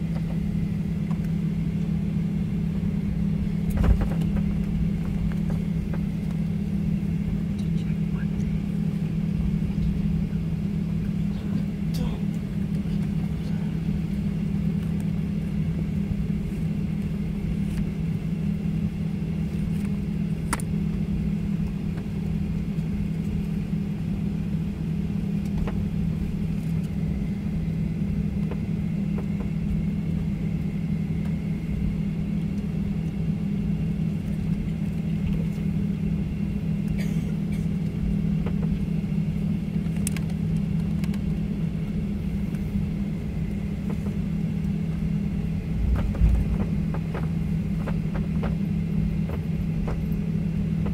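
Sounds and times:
aircraft engines idling drone: 0:00.0 - 0:50.9
cabin air hum: 0:00.0 - 0:50.9.

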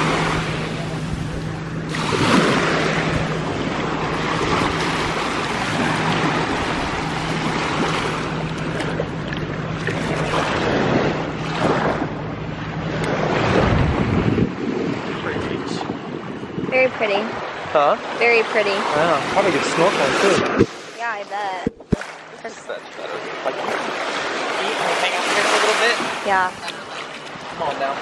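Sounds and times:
small waves washing over sand: 0:00.0 - 0:12.1, 0:12.9 - 0:15.9, 0:16.7 - 0:28.0
wind buffeting microphone: 0:00.0 - 0:22.1
steady low hum: 0:00.0 - 0:24.5.

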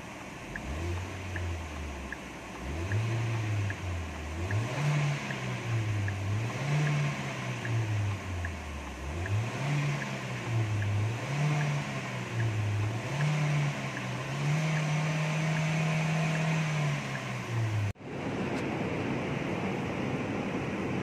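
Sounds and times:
car engine revving: 0:00.0 - 0:18.0.

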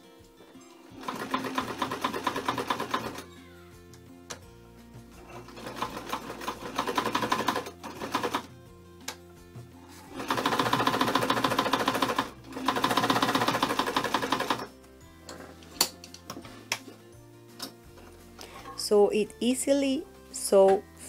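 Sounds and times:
sewing machine running: 0:00.9 - 0:03.3, 0:05.2 - 0:08.5, 0:10.1 - 0:14.7.

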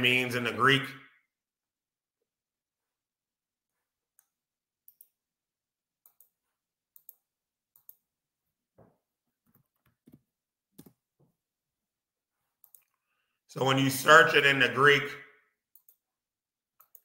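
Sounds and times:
computer mouse clicks: 0:04.1 - 0:05.2, 0:06.0 - 0:08.1, 0:12.6 - 0:13.0, 0:15.7 - 0:16.0, 0:16.8 - 0:17.0.

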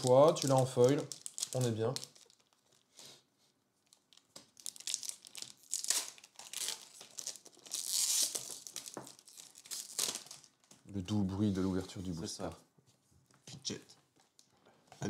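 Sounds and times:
foil pack tearing and crinkling: 0:00.0 - 0:02.8, 0:03.9 - 0:10.6.

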